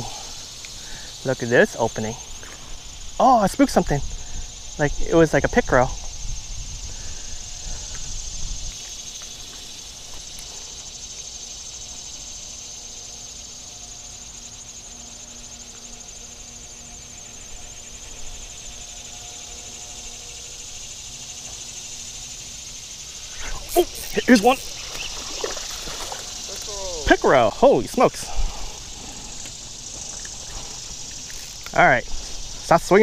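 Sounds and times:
insects chirring: 0.0s - 33.0s.

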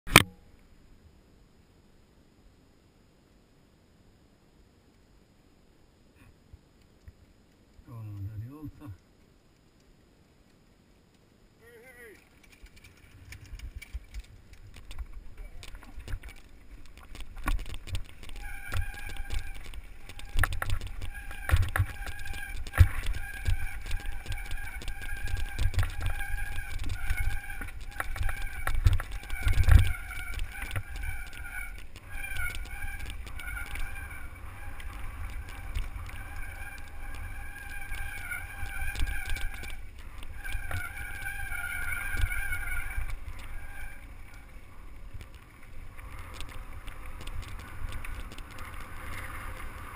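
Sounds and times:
wind buffeting: 12.7s - 49.9s.

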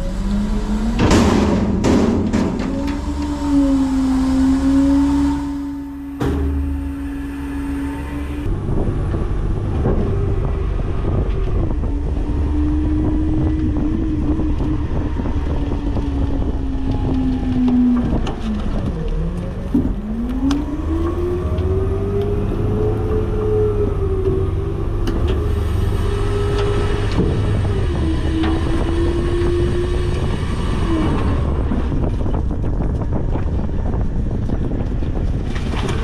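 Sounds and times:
garbage truck engine whining: 0.0s - 36.0s.

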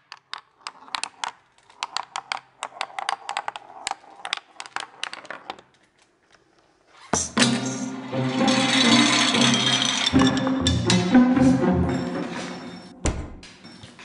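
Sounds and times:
ball bouncing on bottle caps: 0.0s - 5.7s.

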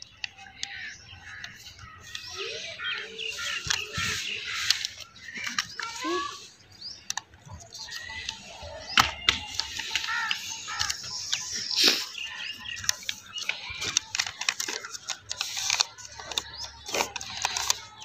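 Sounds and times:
birds chirping: 0.0s - 18.0s
paper crackling while folded: 0.1s - 18.0s
taps pressing paper creases: 7.0s - 18.0s.

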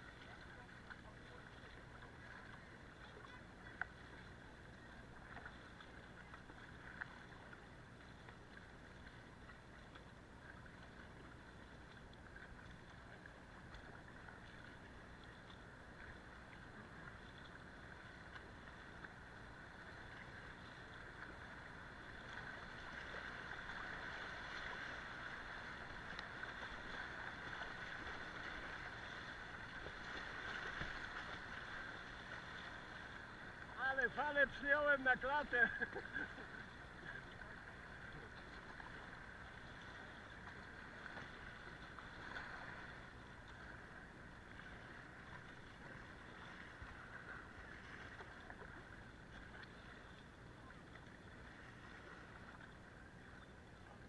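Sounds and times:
river water rushing: 19.3s - 49.0s.

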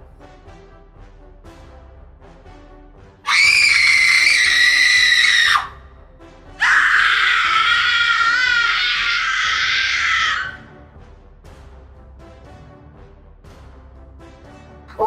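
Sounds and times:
soft background music: 0.0s - 15.0s
cartoon character screaming: 3.3s - 5.8s, 6.6s - 10.6s.

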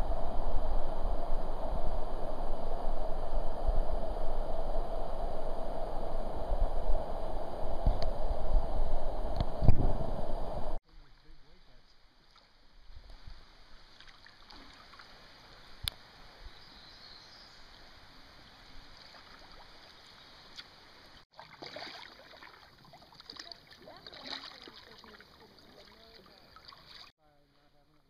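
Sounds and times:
paddle splashing in water: 19.0s - 27.1s.

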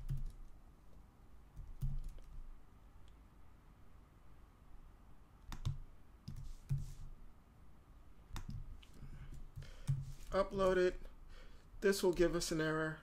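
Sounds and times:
mouse and keyboard clicks: 5.4s - 6.9s.

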